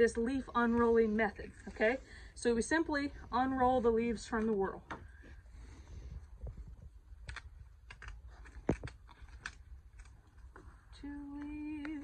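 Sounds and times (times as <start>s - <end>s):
corn leaves crackling as peeled: 7.1s - 12.0s.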